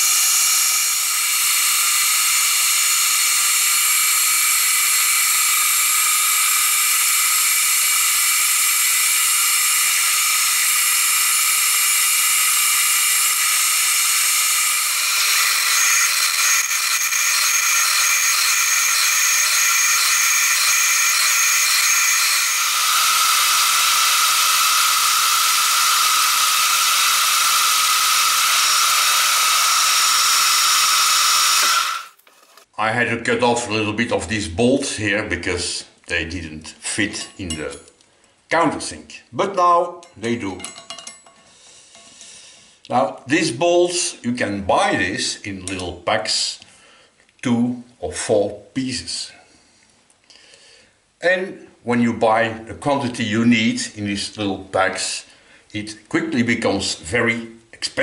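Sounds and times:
milling machine whine: 0:00.0 - 0:32.6
high pulse: 0:13.0 - 0:32.1.

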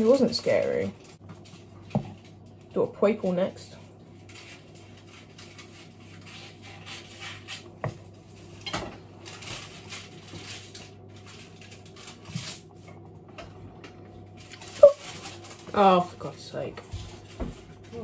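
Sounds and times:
wooden spoon scraping a bowl: 0:04.3 - 0:08.6.

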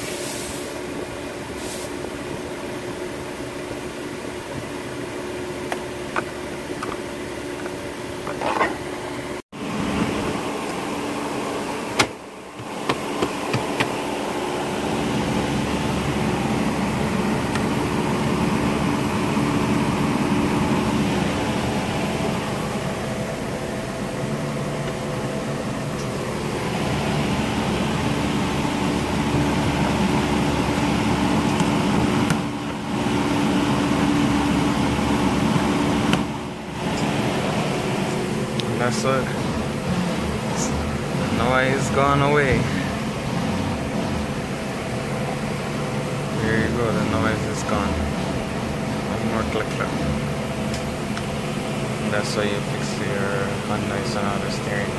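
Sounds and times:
ventilation fan blowing: 0:00.0 - 0:54.9
car engine idling: 0:11.1 - 0:52.8.

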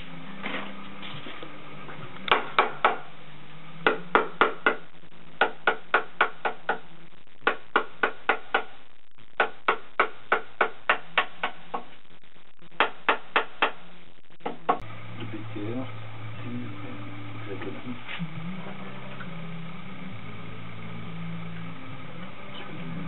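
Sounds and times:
mallet knocking on wood: 0:02.3 - 0:03.1, 0:03.8 - 0:04.8, 0:05.4 - 0:06.8, 0:07.4 - 0:08.7.

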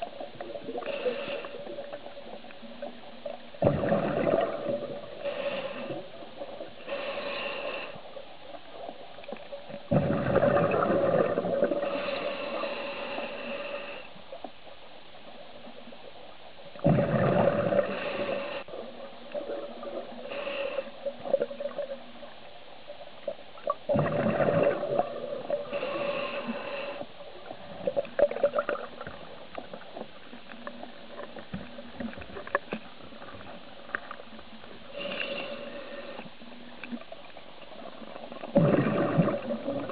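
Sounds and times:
faint bubble crackles: 0:00.0 - 0:07.0, 0:08.5 - 0:13.4, 0:16.7 - 0:22.4, 0:23.2 - 0:39.9
diver breathing through regulator: 0:00.7 - 0:02.2, 0:04.9 - 0:08.2, 0:10.0 - 0:14.2, 0:16.9 - 0:18.9, 0:20.0 - 0:21.5, 0:24.1 - 0:27.2, 0:34.8 - 0:36.4
exhaled bubbles: 0:03.6 - 0:06.6, 0:09.9 - 0:12.1, 0:16.8 - 0:22.0, 0:23.7 - 0:26.6, 0:27.8 - 0:29.8, 0:37.8 - 0:39.9.

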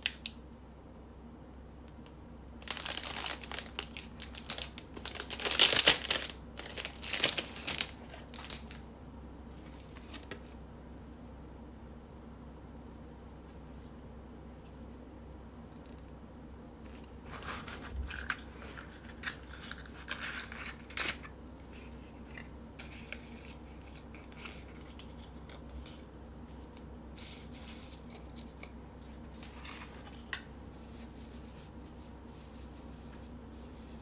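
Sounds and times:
shredded paper crinkling: 0:02.6 - 0:08.8, 0:17.0 - 0:28.7, 0:29.3 - 0:34.0
paper box scraping: 0:17.2 - 0:20.7.

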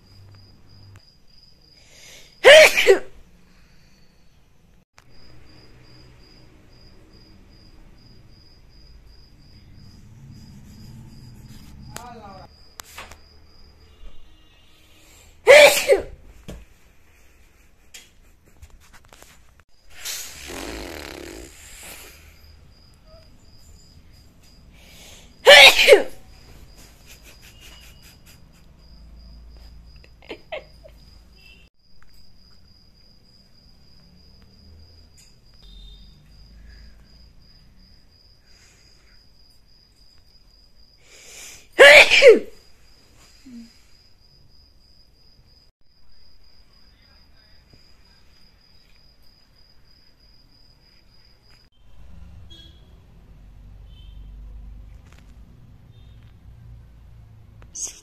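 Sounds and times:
cricket chirping: 0:00.0 - 0:15.7, 0:17.1 - 0:58.0
woman sneezing: 0:02.4 - 0:03.1, 0:15.5 - 0:16.2, 0:25.4 - 0:26.2, 0:41.7 - 0:42.6.

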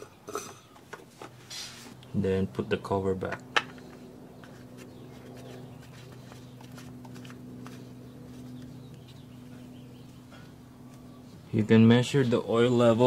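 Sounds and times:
low hum: 0:03.4 - 0:12.8.

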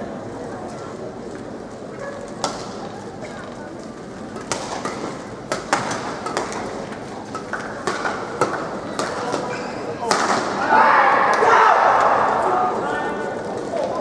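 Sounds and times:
arena noise: 0:00.0 - 0:14.0
rackets striking shuttlecock: 0:04.4 - 0:10.6.

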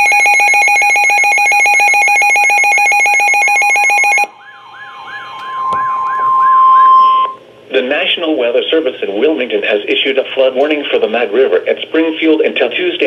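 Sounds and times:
rapid electronic beeping: 0:00.0 - 0:07.5
warbling alarm sweep: 0:00.4 - 0:07.8
steady alert tone: 0:03.8 - 0:07.7.

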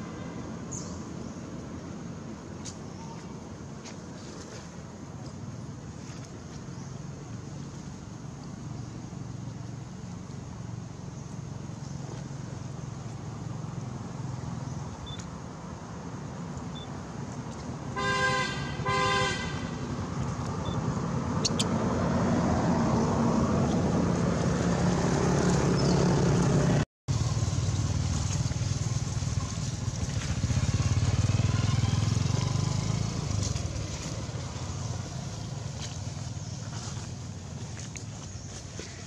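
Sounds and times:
vehicle engine rumbling past: 0:19.4 - 0:39.0.

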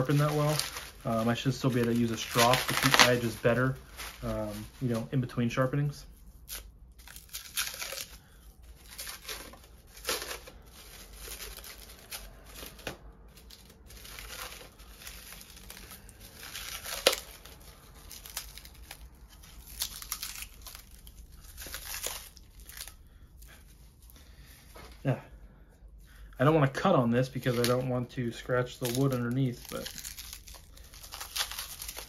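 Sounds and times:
plastic wrap snapping: 0:00.0 - 0:05.1, 0:06.5 - 0:23.0, 0:27.4 - 0:27.9, 0:28.7 - 0:32.0
plastic wrap crinkling and tearing: 0:00.0 - 0:23.8, 0:27.2 - 0:32.0.

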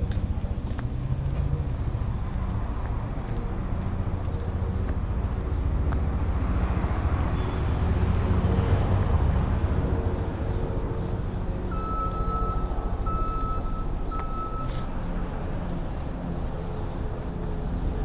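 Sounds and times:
traffic rumble: 0:00.0 - 0:18.0
high electronic beep: 0:11.7 - 0:14.7.

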